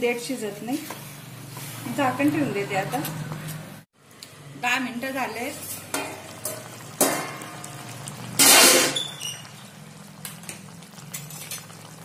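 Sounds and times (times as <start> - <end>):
curry bubbling and hissing: 4.9 - 12.0
metal cookware clatter: 5.6 - 7.6, 8.3 - 9.6, 11.0 - 11.8.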